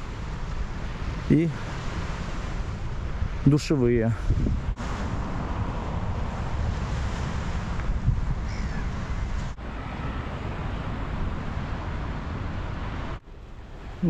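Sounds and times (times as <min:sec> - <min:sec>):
wind blowing on microphone: 0:00.0 - 0:14.0
faint bird call: 0:08.5 - 0:10.4.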